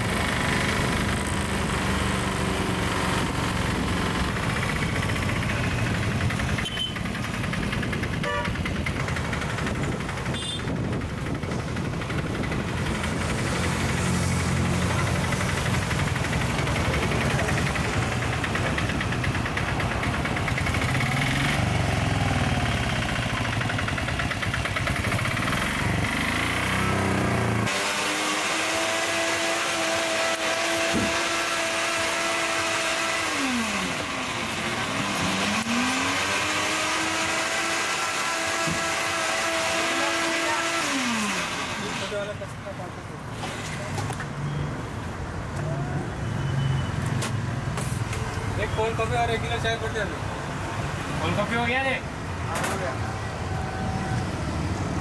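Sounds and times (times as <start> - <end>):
small engine pulsing rumble: 0.0 - 27.7.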